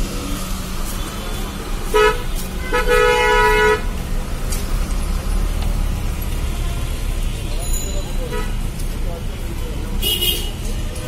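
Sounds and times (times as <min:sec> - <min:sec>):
car horn: 0:01.0 - 0:03.9, 0:07.5 - 0:08.6, 0:10.0 - 0:10.7.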